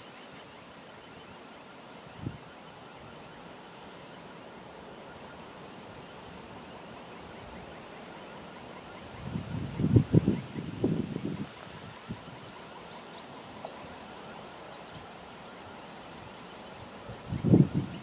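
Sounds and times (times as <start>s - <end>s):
distant train running: 0.0s - 18.0s
wind bump on microphone: 9.2s - 12.5s, 17.0s - 18.0s.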